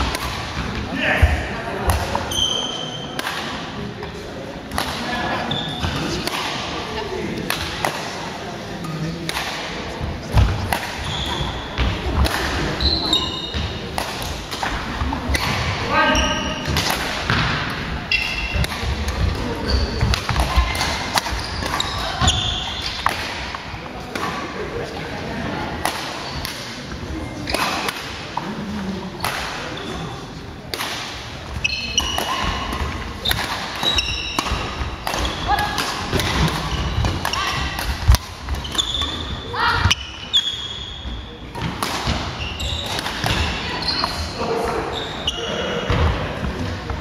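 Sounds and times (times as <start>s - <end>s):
racket hitting shuttlecock: 0.0s - 0.8s, 3.1s - 3.6s, 4.7s - 5.1s, 5.9s - 6.8s, 7.4s - 8.2s, 9.2s - 15.7s, 16.6s - 19.4s, 20.0s - 24.4s, 25.8s - 26.7s, 27.5s - 28.5s, 29.2s - 29.6s, 30.7s - 40.2s, 41.5s - 44.2s
shoes squeaking on wooden floor: 19.4s - 22.8s, 38.6s - 41.2s.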